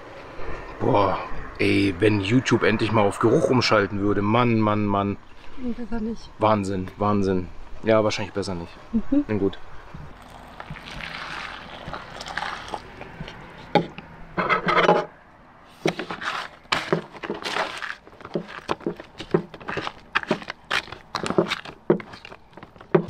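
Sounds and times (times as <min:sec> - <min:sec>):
water poured into foil pouch: 0:10.1 - 0:13.3
foil crinkling: 0:10.1 - 0:13.7, 0:15.8 - 0:22.9
metal spoon stirring and scraping: 0:15.8 - 0:22.8.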